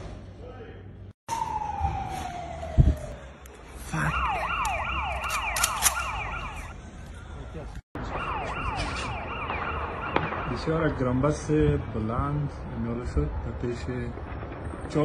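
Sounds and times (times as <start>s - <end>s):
electronic alarm siren: 1.3s - 3.3s, 3.9s - 6.8s, 8.0s - 10.6s.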